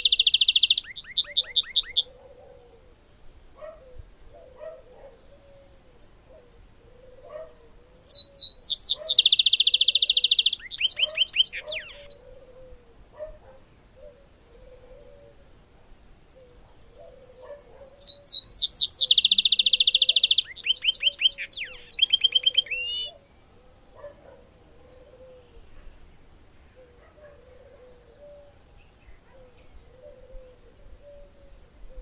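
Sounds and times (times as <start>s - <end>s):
finch singing buzzing trills: 0.0s - 2.1s, 8.0s - 12.2s, 16.1s - 23.3s
faint low repeated bird calls: 0.0s - 32.0s.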